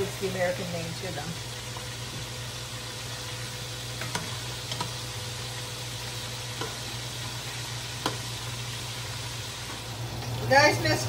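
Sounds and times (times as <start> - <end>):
food sizzling in hot oil: 0.0 - 11.0.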